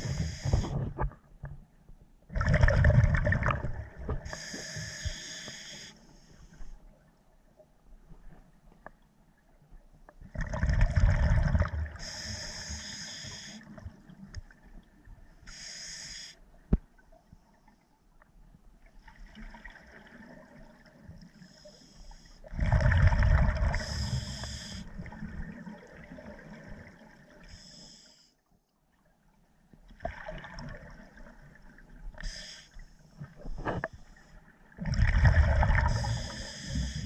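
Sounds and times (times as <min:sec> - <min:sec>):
regulator hissing inhalations: 0:00.0 - 0:00.7, 0:04.3 - 0:06.7, 0:12.0 - 0:13.7, 0:15.5 - 0:16.4, 0:23.8 - 0:24.9, 0:32.2 - 0:32.8, 0:35.9 - 0:37.0
exhaled bubbles gushing: 0:02.3 - 0:04.2, 0:10.3 - 0:12.0, 0:22.6 - 0:23.8, 0:34.8 - 0:36.2.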